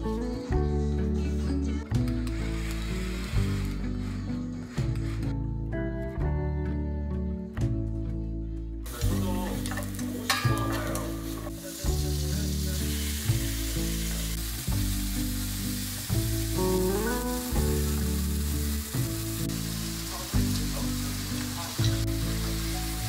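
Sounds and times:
soft background music: 0.0s - 23.0s
food sizzling in a frying pan: 8.9s - 23.0s.

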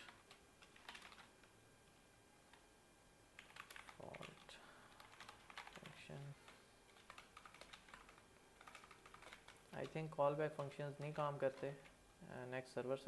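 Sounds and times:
faint keyboard typing: 0.0s - 1.6s, 2.4s - 2.6s, 3.4s - 12.0s.

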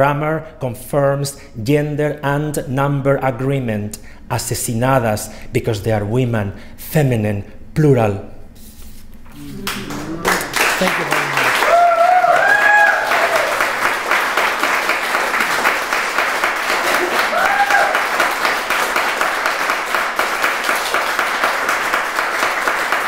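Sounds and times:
person calling out: 9.3s - 11.8s
audience applauding: 9.3s - 23.0s.

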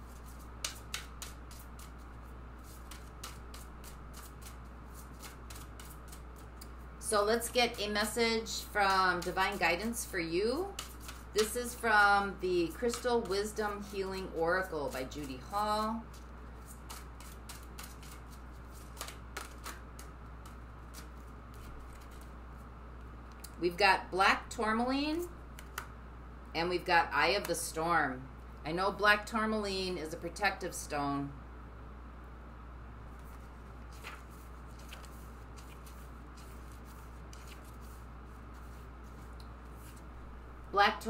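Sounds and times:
paper pages rustling: 0.0s - 6.6s, 8.6s - 22.4s, 33.1s - 40.1s
cards being shuffled: 0.0s - 6.8s, 9.1s - 22.4s, 25.6s - 25.9s, 33.1s - 40.1s.

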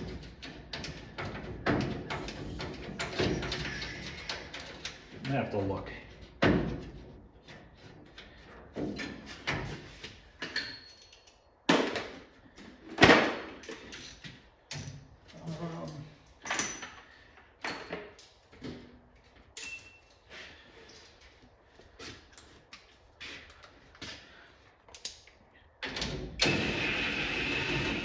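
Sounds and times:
metal tools clattering: 10.4s - 11.4s, 16.4s - 18.2s, 19.6s - 20.3s.

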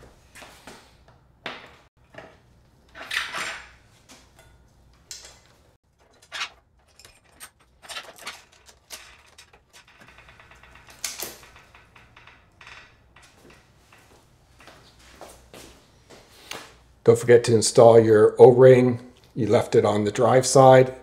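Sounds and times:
metal clinks and knocks: 2.9s - 15.2s
scraping rustles: 5.5s - 16.8s.

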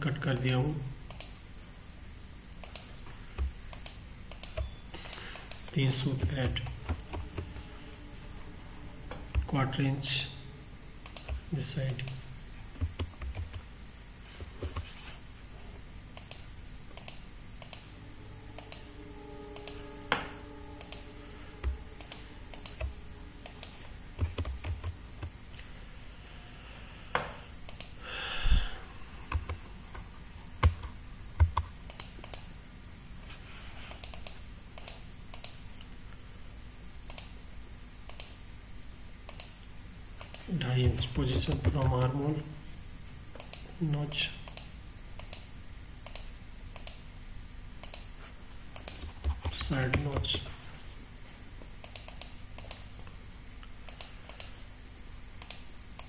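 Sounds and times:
keyboard and mouse clicking: 0.4s - 1.4s, 2.6s - 5.7s, 11.0s - 12.2s, 12.8s - 13.6s, 16.1s - 17.9s, 21.6s - 25.3s, 27.7s - 28.0s, 29.3s - 30.0s, 30.6s - 32.5s, 33.9s - 35.6s, 38.1s - 38.4s, 44.4s - 47.0s, 48.8s - 50.4s, 51.8s - 52.8s, 55.4s - 55.6s
typing on keyboard: 12.8s - 13.6s, 24.2s - 25.3s, 48.8s - 50.5s.

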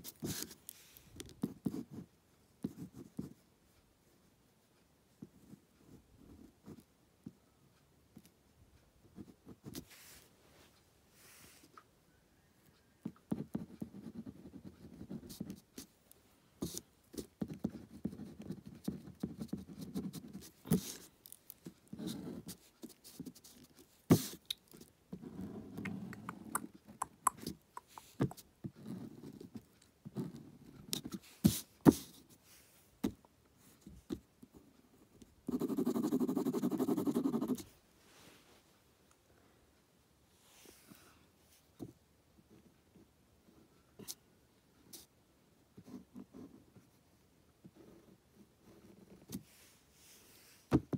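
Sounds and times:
ballpoint pen scratching on paper: 0.0s - 0.6s, 1.2s - 3.4s, 13.3s - 15.9s, 16.6s - 32.2s, 35.4s - 37.7s
sharp taps and clicks: 25.8s - 28.4s.

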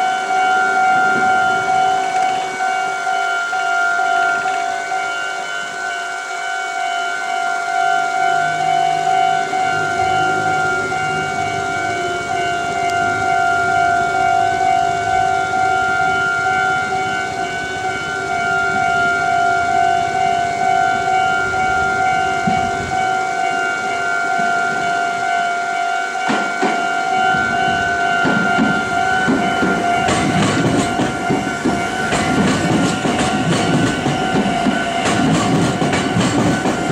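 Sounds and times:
level-crossing bell ringing: 0.0s - 36.9s
train wheels clattering on rails: 8.3s - 36.9s.

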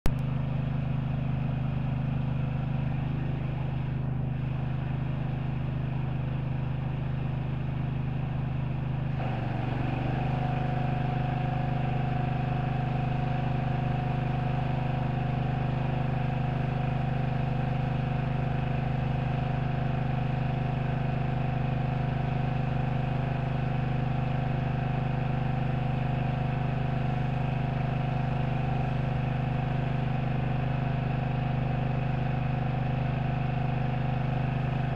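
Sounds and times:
engine running steadily: 0.0s - 34.9s.

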